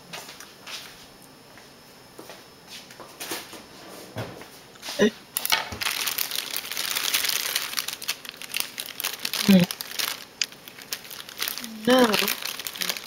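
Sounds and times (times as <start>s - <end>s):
plastic packaging crinkling: 5.4s - 13.0s.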